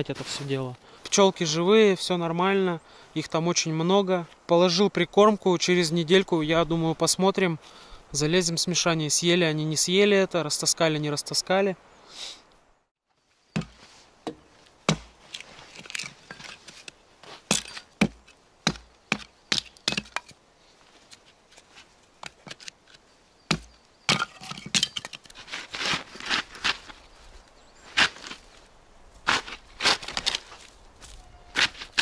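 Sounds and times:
hatchet chopping wood: 0:13.6 - 0:15.2, 0:17.5 - 0:20.3, 0:23.5 - 0:25.0.

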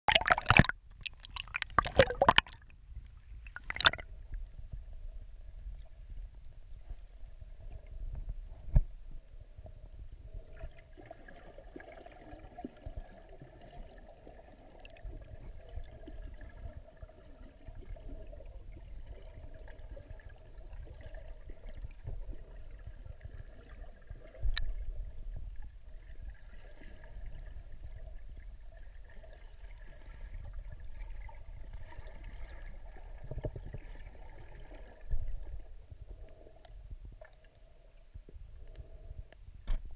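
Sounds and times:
water splashing: 0:00.1 - 0:02.7, 0:03.5 - 0:04.0
faint steady hum: 0:00.1 - 0:39.9
muffled underwater rumble: 0:01.9 - 0:39.9.

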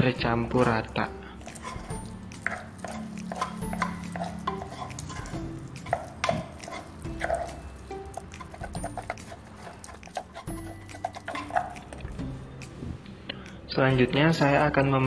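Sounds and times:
wet dough squelching: 0:00.4 - 0:12.8
spoon clicking on wood: 0:00.6 - 0:12.2.

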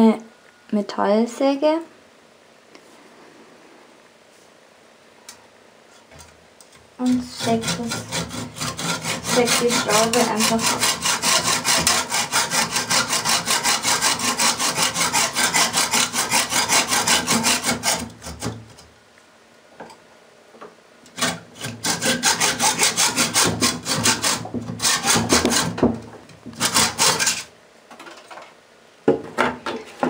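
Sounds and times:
hacksaw cutting metal: 0:07.0 - 0:18.6, 0:21.1 - 0:25.9, 0:26.6 - 0:27.5.

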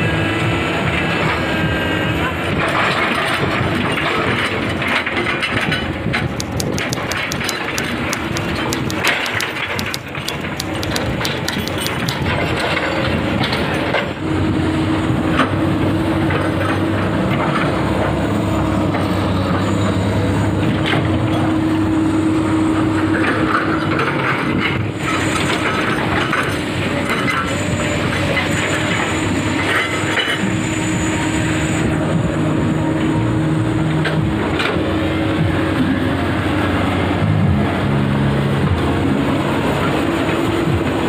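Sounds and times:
excavator diesel engine running: 0:00.0 - 0:41.0
short metallic clatters: 0:04.9 - 0:13.0.

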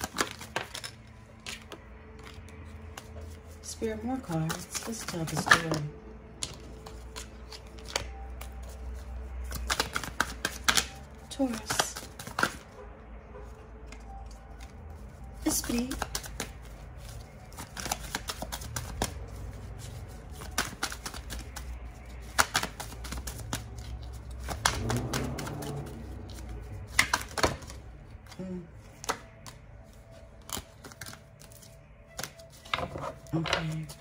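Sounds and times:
cards being shuffled: 0:00.0 - 0:12.8, 0:13.9 - 0:34.0.

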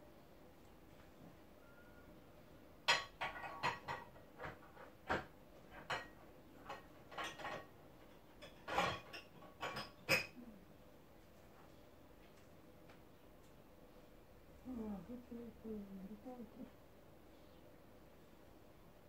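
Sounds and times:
dishes and utensils clinking: 0:02.8 - 0:10.5.

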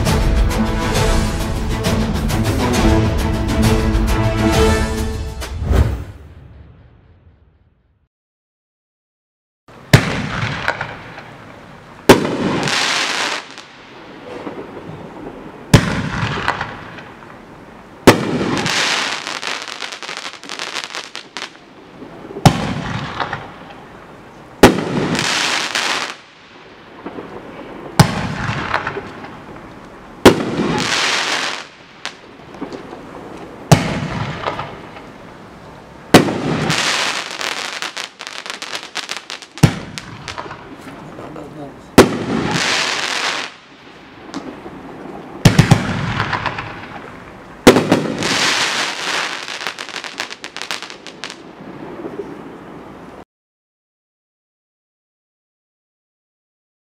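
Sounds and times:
fireworks bangs: 0:09.7 - 0:17.4, 0:18.0 - 0:24.0, 0:24.6 - 0:52.6
fireworks crackling: 0:09.7 - 0:52.8.

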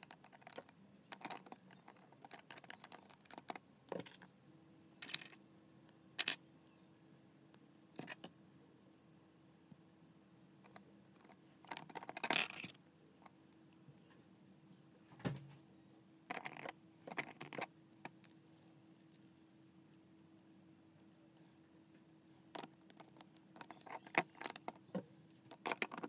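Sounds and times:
plastic pieces rubbing: 0:11.2 - 0:12.8, 0:16.3 - 0:18.2, 0:22.6 - 0:26.0.

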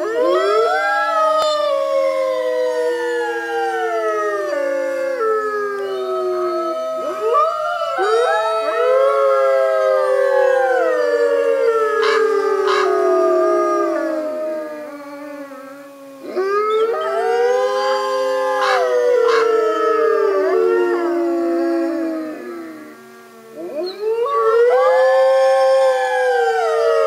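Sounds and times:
wolves howling in chorus: 0:00.0 - 0:27.0
sharp wolf calls: 0:11.9 - 0:13.1, 0:16.7 - 0:19.6.

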